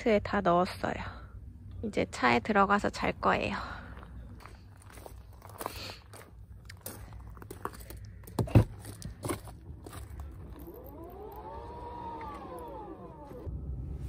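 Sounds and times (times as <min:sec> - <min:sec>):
footsteps crunching on gravel: 0:03.8 - 0:11.3
powered car door motor whine: 0:09.8 - 0:14.0.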